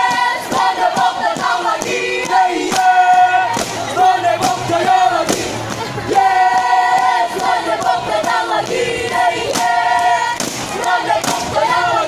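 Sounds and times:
group chanting and singing: 0.0s - 12.0s.

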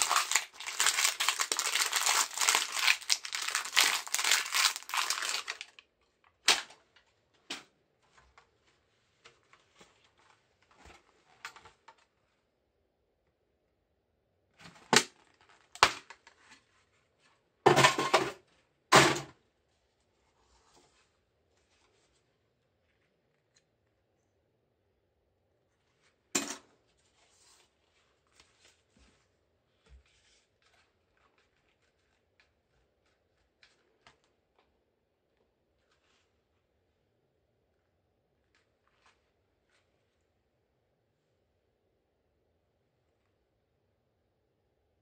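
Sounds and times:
plastic crinkling and crackling: 0.0s - 6.8s, 30.2s - 34.7s.

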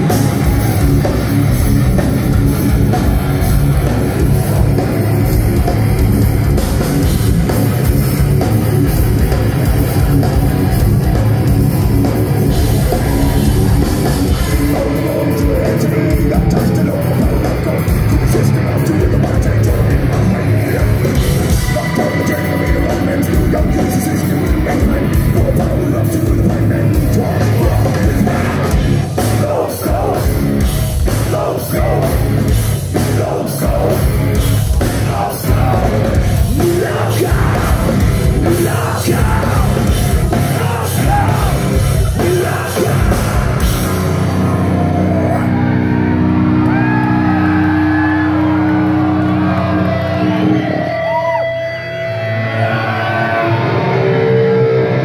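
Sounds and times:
pounding drums: 0.0s - 44.6s
heavy distorted guitars: 0.0s - 55.0s
person yelling singing: 9.9s - 45.8s.

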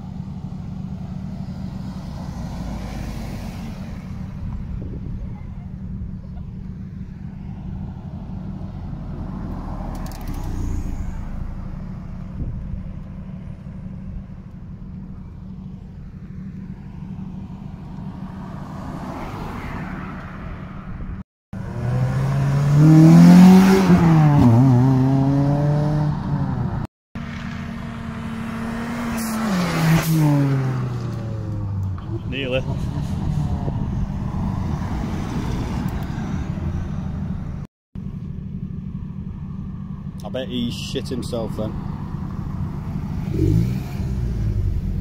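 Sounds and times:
car engines rumbling low: 0.0s - 45.0s
car engine revving hard: 21.6s - 26.6s, 43.0s - 45.0s.

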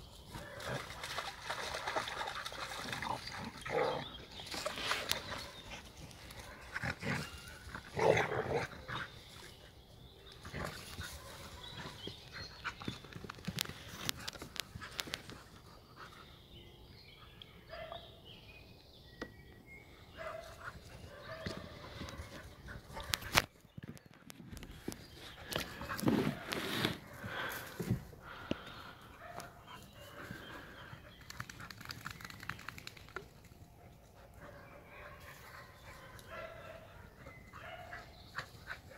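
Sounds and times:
dogs growling: 2.8s - 4.2s, 6.7s - 9.1s.

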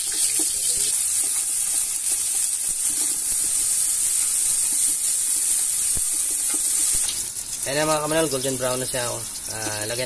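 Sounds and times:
onions sizzling in oil: 0.0s - 10.0s.

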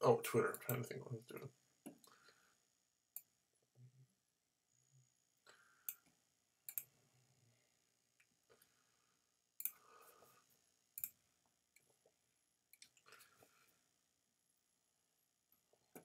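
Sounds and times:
computer mouse clicks: 6.7s - 6.9s, 11.0s - 11.2s.

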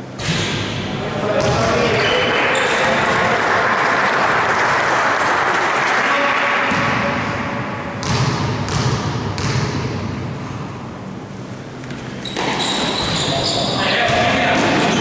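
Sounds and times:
crowd noise echoing in gym: 0.0s - 15.0s
basketball bouncing on court floor: 1.4s - 1.8s, 8.0s - 10.0s.

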